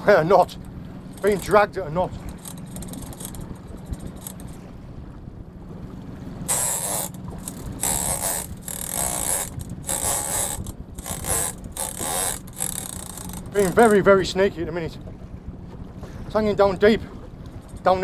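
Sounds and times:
fishing reel ratchet clicking: 1.2 - 1.6, 2.3 - 4.5, 6.5 - 14.0.

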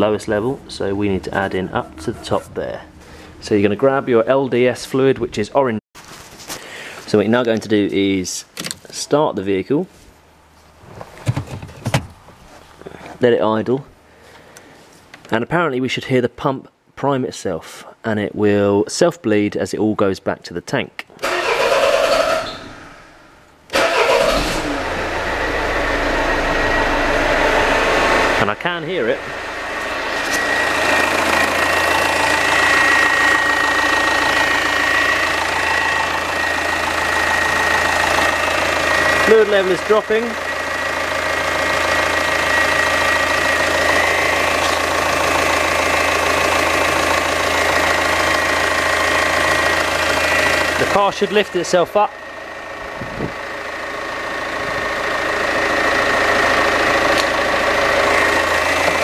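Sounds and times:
car engine idling: 0.0 - 4.7, 21.2 - 59.0
pump whine: 23.8 - 28.4, 29.2 - 59.0.

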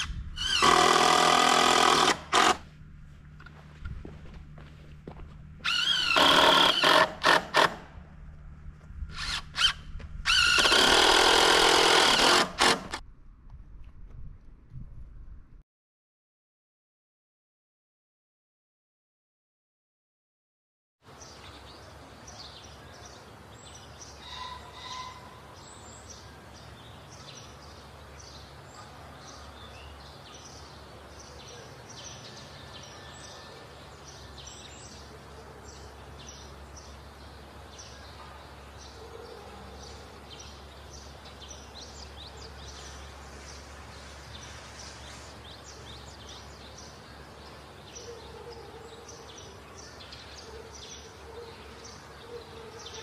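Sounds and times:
small birds chirping: 21.1 - 53.0.

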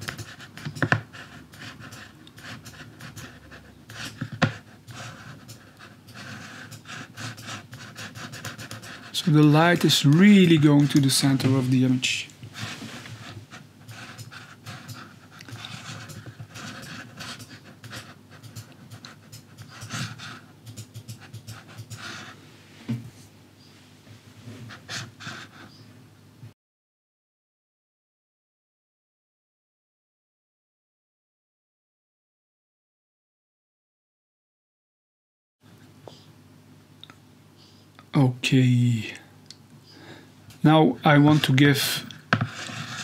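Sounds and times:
panting breaths: 0.0 - 9.8, 12.4 - 22.5, 24.6 - 25.9
mouse scratching and rubbing: 0.0 - 11.8, 12.5 - 22.3, 42.2 - 43.0
breathing close to microphone: 37.6 - 37.9, 39.8 - 40.4.

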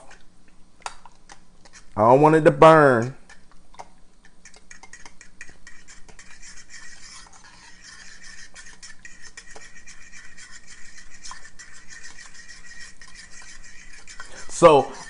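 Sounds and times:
metal fork scraping saucepan: 1.6 - 2.0, 4.4 - 15.0.

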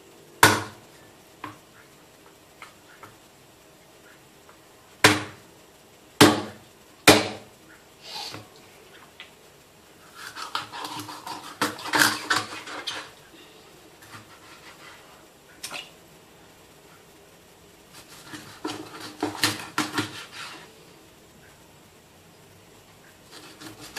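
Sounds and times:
knife chopping on cutting board: 5.0 - 5.4, 6.2 - 7.4, 18.2 - 20.5
knife cutting and scraping: 10.1 - 13.1, 14.0 - 15.1, 17.9 - 20.7, 23.3 - 23.9.

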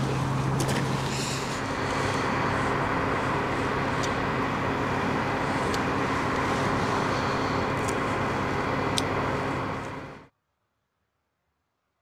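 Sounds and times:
fan humming: 0.0 - 10.3.

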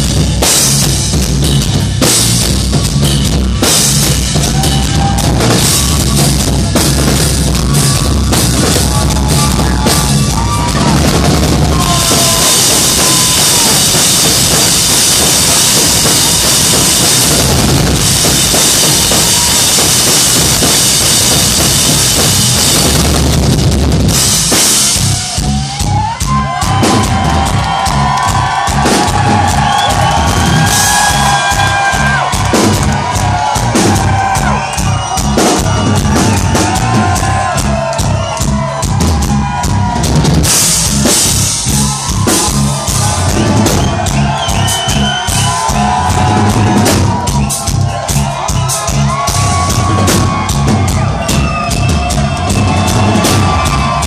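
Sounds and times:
bass drum and tom hits: 0.0 - 54.0
drum solo: 0.0 - 54.0
crashing cymbals: 11.4 - 23.4.

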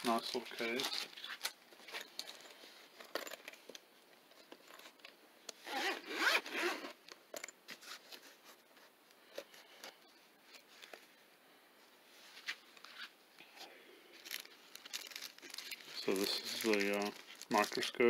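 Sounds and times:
zipper being pulled open: 5.6 - 7.0.

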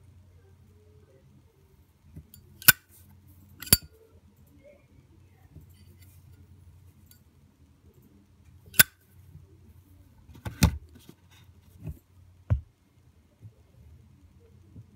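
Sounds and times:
metallic lighter clicks: 2.6 - 2.8, 3.6 - 3.9, 8.7 - 8.9.

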